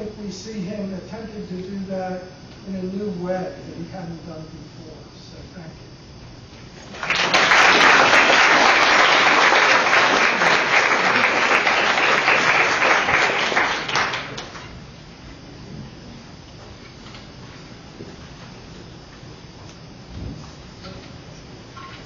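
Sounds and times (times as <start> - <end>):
audience applauding: 6.8 - 14.7.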